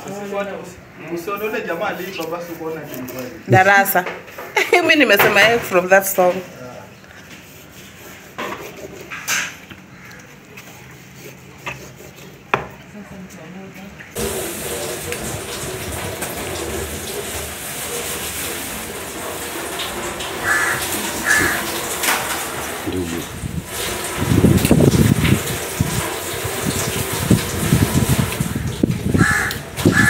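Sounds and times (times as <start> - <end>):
running water: 14.1 - 30.0.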